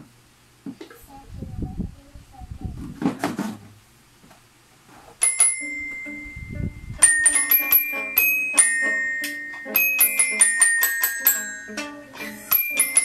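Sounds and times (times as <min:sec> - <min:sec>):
toy xylophone ringing notes: 0:05.2 - 0:13.0.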